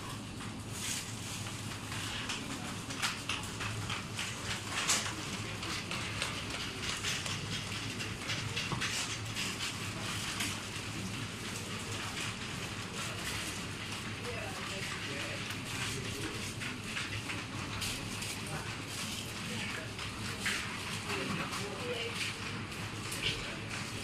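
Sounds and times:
crackling and rustling: 0.0s - 24.0s.

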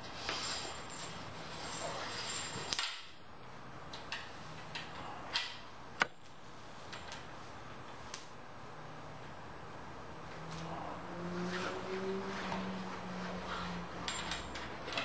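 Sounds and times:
bungee cord rustle: 0.0s - 2.8s.

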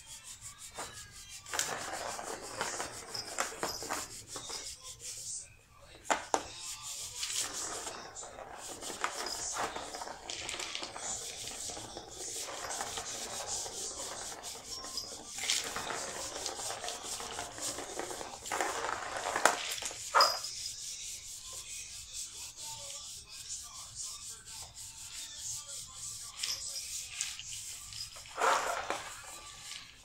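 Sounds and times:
plastic ball rolling in track: 0.8s - 4.6s, 7.2s - 20.5s, 26.4s - 30.0s
paws scraping on toy: 26.2s - 29.9s.

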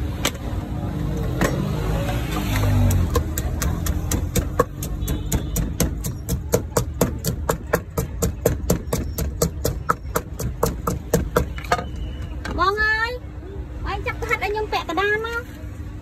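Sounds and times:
wooden pestle pounding in mortar: 2.7s - 11.7s.

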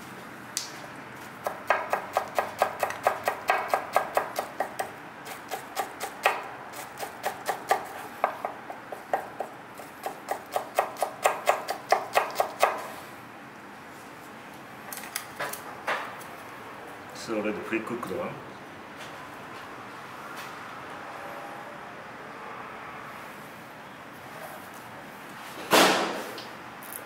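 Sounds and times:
knife chopping on cutting board: 1.4s - 12.9s.

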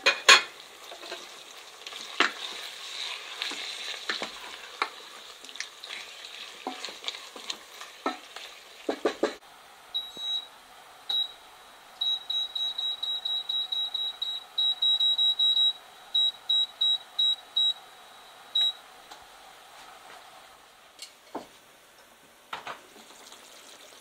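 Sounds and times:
knock: 8.9s - 9.4s
control panel beeping: 10.0s - 10.5s, 11.1s - 11.4s, 12.0s - 18.8s.

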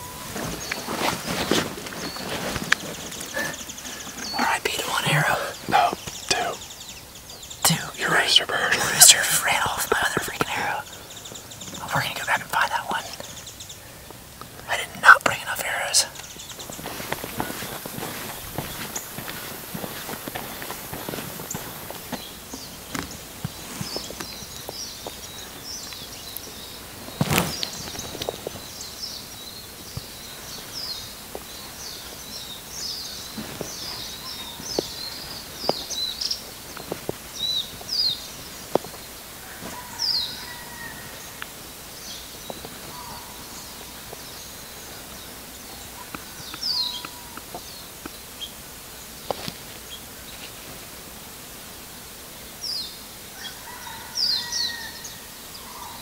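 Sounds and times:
small birds chirping: 0.0s - 50.7s, 51.9s - 56.0s
outdoor background hiss: 0.0s - 56.0s.

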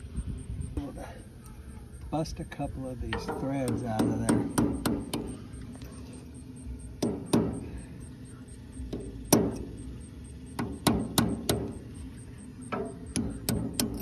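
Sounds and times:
hammer tapping steel punch: 3.1s - 5.4s, 7.0s - 7.7s, 8.8s - 9.8s, 10.5s - 11.8s, 12.7s - 14.0s.

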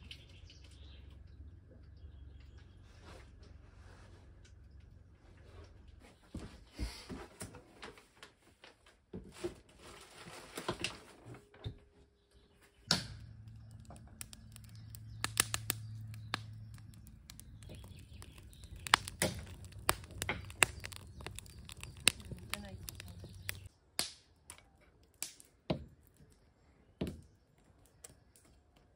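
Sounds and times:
low steady hum: 11.2s - 23.7s
wood fire crackling and popping: 12.8s - 26.4s.

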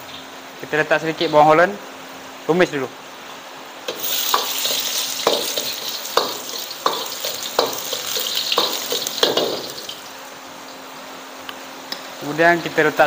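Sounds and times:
metal ladle scraping a wok: 3.9s - 9.9s
garlic and onion sizzling in oil: 3.9s - 11.4s.

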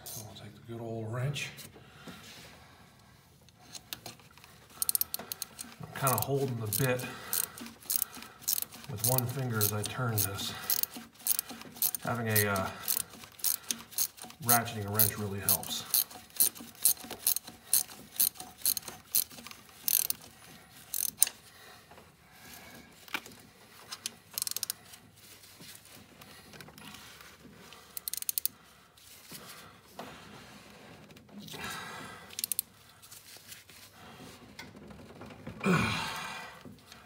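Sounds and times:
ratcheting wrench clicking: 3.7s - 21.4s, 23.1s - 24.8s, 27.7s - 28.6s, 32.3s - 32.7s.

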